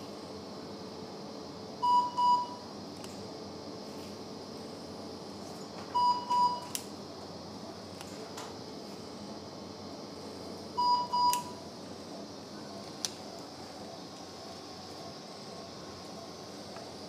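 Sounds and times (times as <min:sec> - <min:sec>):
generator double beeps: 0:01.8 - 0:02.6, 0:06.0 - 0:06.7, 0:10.8 - 0:11.6.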